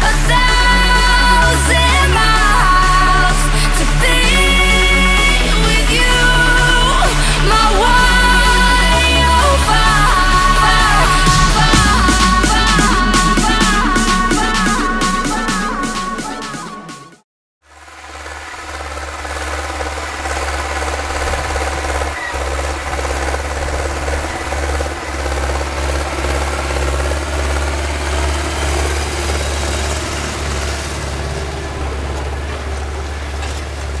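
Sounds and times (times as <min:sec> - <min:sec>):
tractor diesel engine under load: 0:00.0 - 0:16.8, 0:17.7 - 0:34.0.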